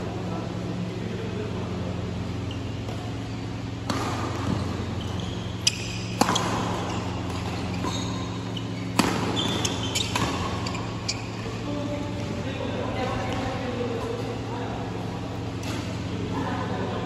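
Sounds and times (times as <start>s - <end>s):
steady low hum: 0.0s - 17.0s
rackets hitting a shuttlecock: 2.8s - 11.4s
short high squeaks: 4.5s - 11.4s.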